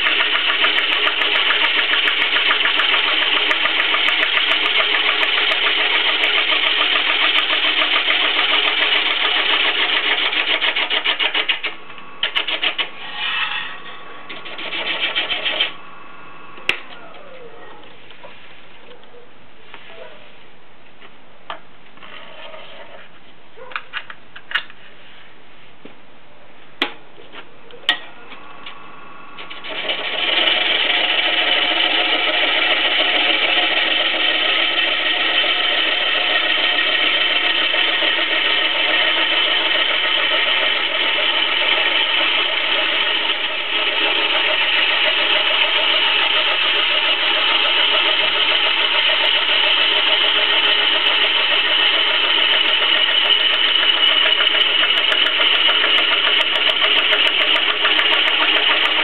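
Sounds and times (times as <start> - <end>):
gouge cutting wood on lathe: 0.0 - 15.7, 29.5 - 59.0
wood lathe humming: 0.0 - 16.7, 29.4 - 59.0.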